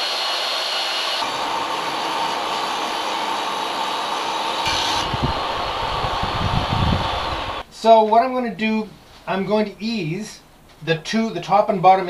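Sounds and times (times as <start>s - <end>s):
table saw cutting wood: 0.0s - 7.6s
wind gusts on microphone: 4.7s - 7.6s.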